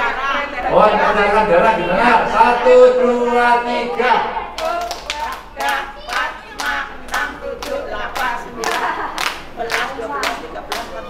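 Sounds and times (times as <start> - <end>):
voices: 0.0 - 11.0
rhythmic hand clapping: 4.5 - 11.0.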